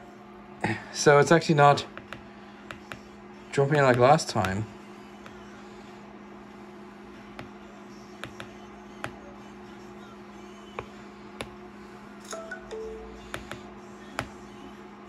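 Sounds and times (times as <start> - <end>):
steady low hum: 0.0 - 15.0
stylus tip tapping glass screen: 8.2 - 9.2.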